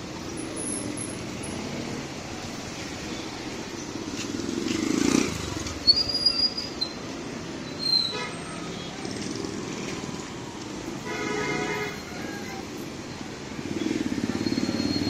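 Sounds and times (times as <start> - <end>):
street traffic: 0.0 - 15.0
motor vehicle passing close by: 3.0 - 5.9
short high squeaks: 5.8 - 7.1.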